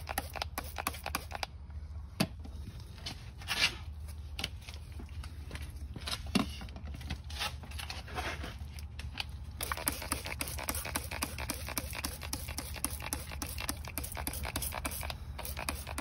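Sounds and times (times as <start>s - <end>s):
spray bottle squirting: 0.0s - 1.5s, 9.6s - 16.0s.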